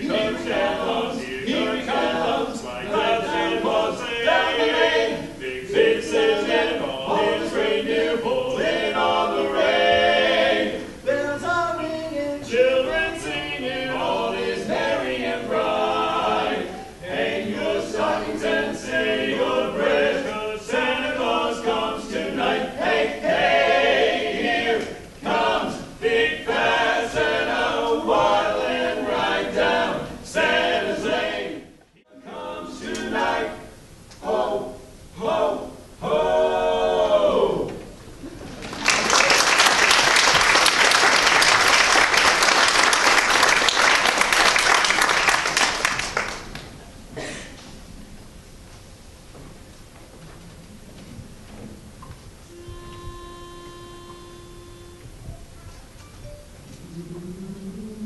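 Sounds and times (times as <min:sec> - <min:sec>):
men singing in close harmony: 0:00.0 - 0:33.6.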